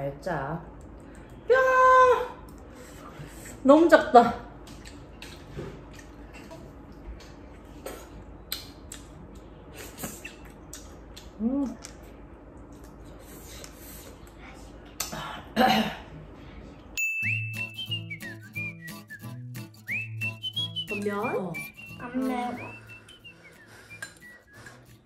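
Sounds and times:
background music with whistling: 17.1s - 25.0s
person humming: 21.6s - 23.3s.

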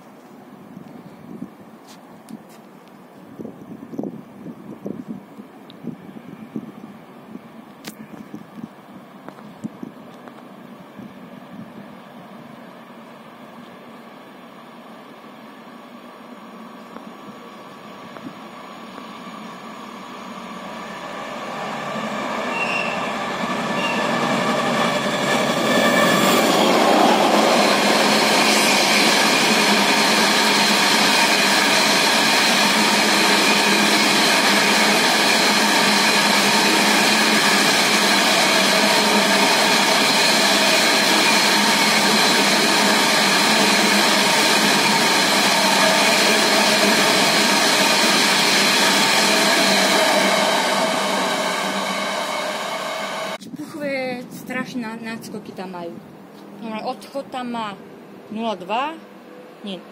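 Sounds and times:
train rumbling past: 3.2s - 59.9s
steady high tones: 17.4s - 53.4s.

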